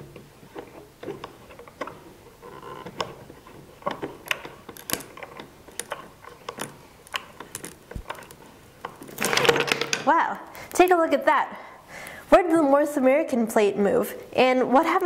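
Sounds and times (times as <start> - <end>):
bolt turning clicks: 3.9 - 9.2.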